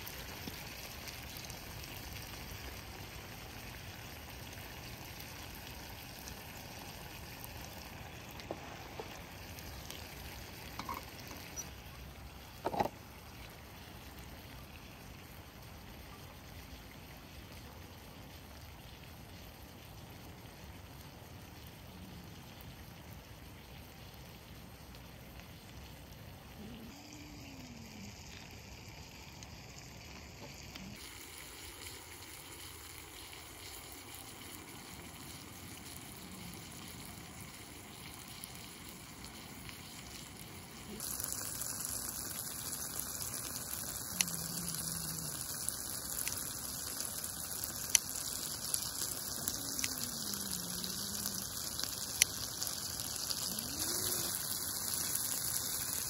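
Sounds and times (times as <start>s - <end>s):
rain pattering: 0.0s - 56.0s
drip-like ticks: 7.4s - 12.0s, 23.2s - 56.0s.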